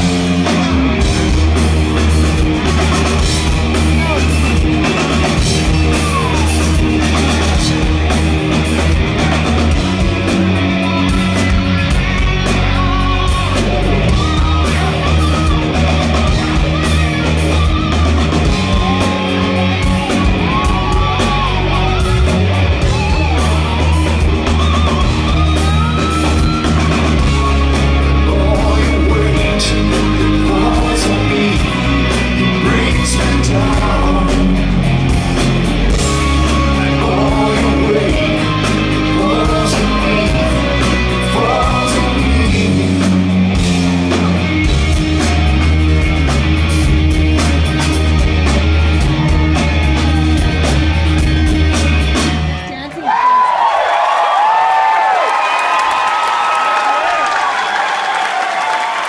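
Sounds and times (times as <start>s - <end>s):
lead singer singing: 0.0s - 45.7s
bass guitar: 0.0s - 53.0s
electric guitars: 0.0s - 53.3s
drums: 0.0s - 59.0s.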